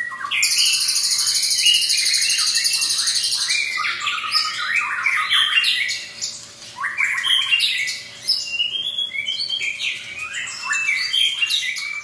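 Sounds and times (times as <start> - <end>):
bird singing varied song: 0.0 - 12.0.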